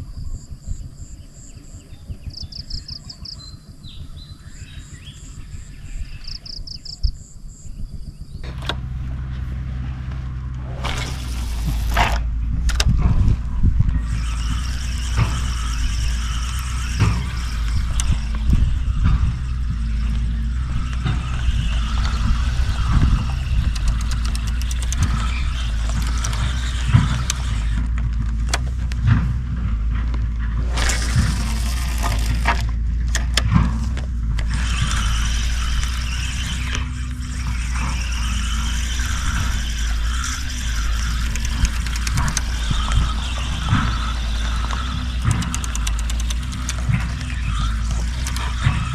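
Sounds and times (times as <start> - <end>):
low rumble: 0.0 - 48.9
fishing reel whirring and clicking: 10.7 - 29.3, 30.6 - 48.9.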